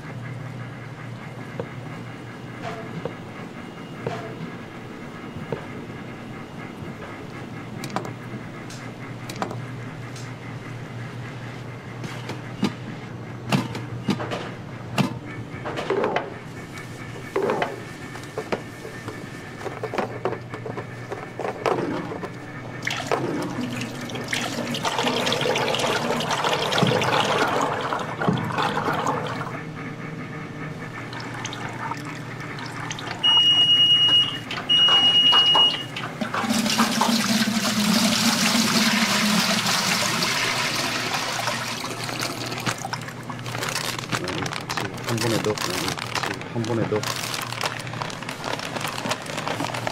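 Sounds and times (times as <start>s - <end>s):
long electronic beeps: 33.2s - 36.0s.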